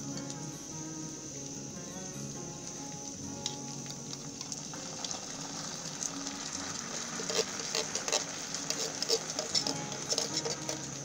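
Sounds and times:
steady sizzle: 0.0s - 11.0s
beans poured into a pan: 2.8s - 11.0s
wet spattering and crackling: 2.8s - 11.0s.

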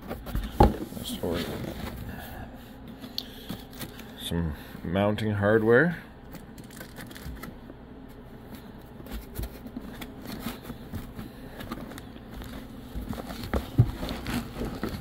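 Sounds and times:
cardboard box rustling and scraping: 0.0s - 2.1s, 9.0s - 15.0s.

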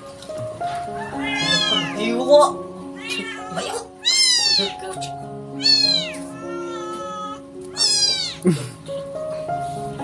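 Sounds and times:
background music: 0.0s - 10.0s
kitten meowing: 1.0s - 2.2s, 2.9s - 8.4s.

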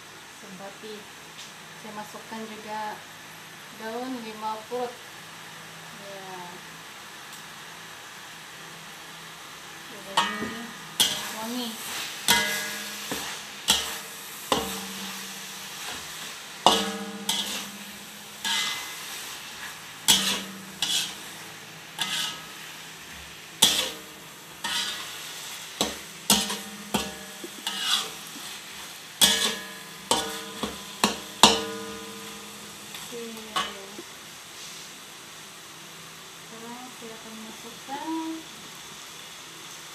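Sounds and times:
faint frying sizzle: 0.0s - 39.9s
spatula scraping a pot: 12.3s - 17.8s, 18.4s - 19.0s, 20.1s - 21.2s, 22.0s - 22.5s, 24.6s - 25.1s, 25.8s - 28.4s.

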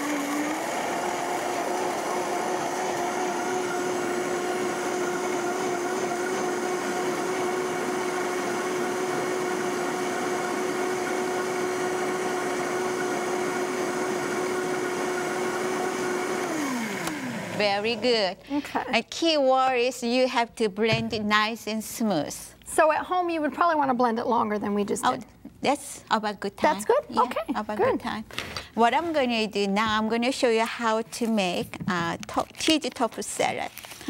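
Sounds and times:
blender motor whining: 0.0s - 18.2s.

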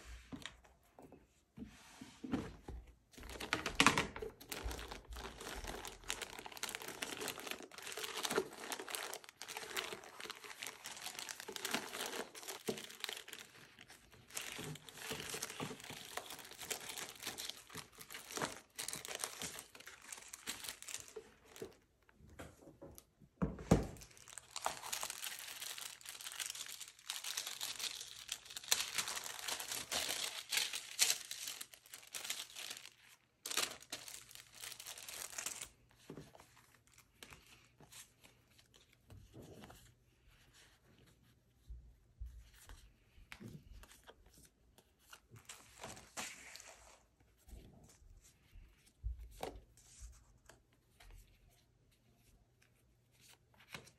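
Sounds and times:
plastic bags and papers rustling: 2.2s - 22.3s, 23.7s - 40.0s, 43.5s - 48.0s.

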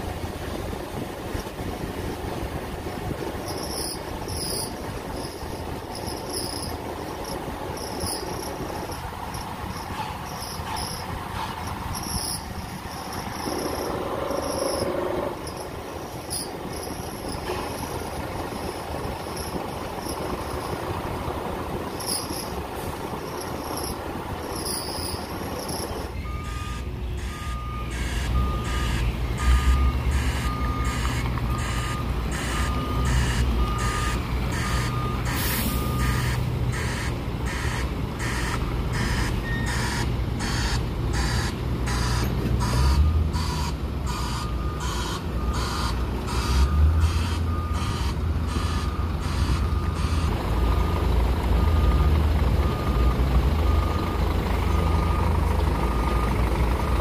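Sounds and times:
diesel engine running low: 0.0s - 57.0s
reversing alarm beeping: 9.3s - 15.7s, 23.4s - 56.5s.

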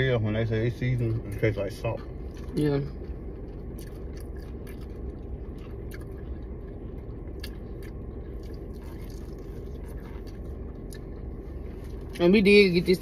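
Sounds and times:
steady low hum: 0.0s - 13.0s
person chewing: 2.2s - 12.2s.

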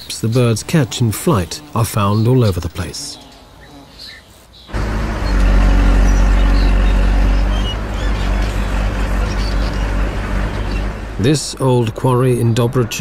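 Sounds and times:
excavator diesel engine: 4.7s - 13.0s.

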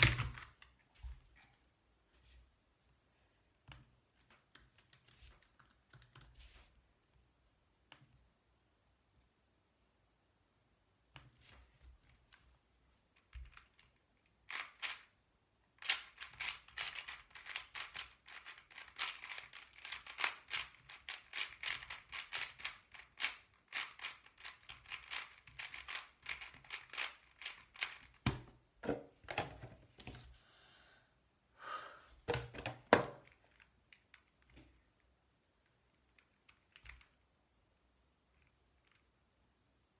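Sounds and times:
puzzle cube plastic clicks: 13.2s - 28.3s, 32.4s - 37.3s.

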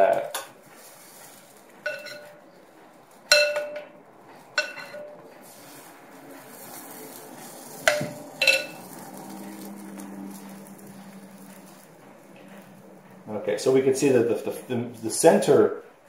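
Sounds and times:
metal spoon clinking glass bowl: 1.9s - 2.4s, 3.3s - 3.9s, 4.6s - 5.2s, 7.9s - 8.9s.

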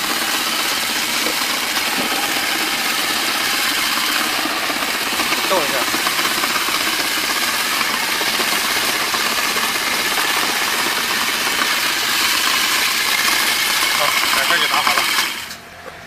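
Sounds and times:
electric vegetable chopper running: 0.0s - 16.0s.

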